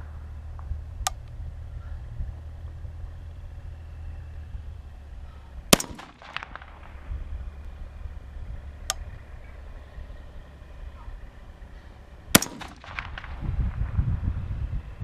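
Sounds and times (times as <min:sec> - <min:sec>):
faint gunshot crack: 0:05.7 - 0:07.0, 0:12.4 - 0:13.5
rifle gunshots: 0:05.7 - 0:07.1, 0:12.3 - 0:13.8.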